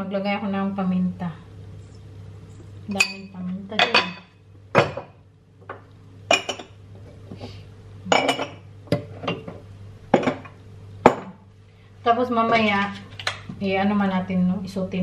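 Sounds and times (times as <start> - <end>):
low steady hum: 0.0 - 15.0
utensils clinking against dishes: 2.9 - 5.1.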